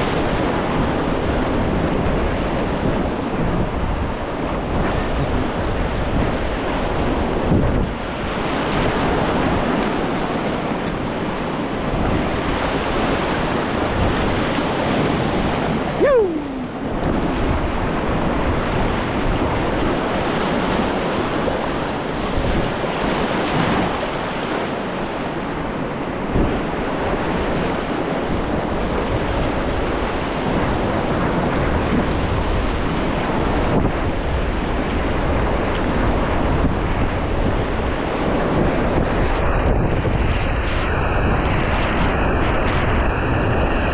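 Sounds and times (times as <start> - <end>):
wind noise on microphone: 0.0 - 43.9
whitewater rushing: 11.2 - 18.0.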